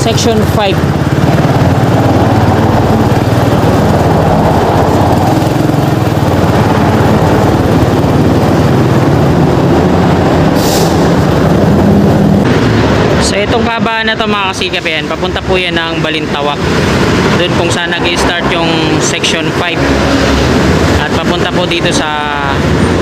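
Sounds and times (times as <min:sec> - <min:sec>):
scooter engine running: 0:00.0 - 0:13.1.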